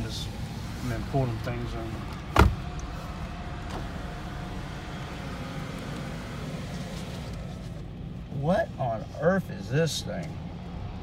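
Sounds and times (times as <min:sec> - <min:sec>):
car running inside cabin: 0:00.0 - 0:11.0
sharp thump: 0:02.3 - 0:02.7.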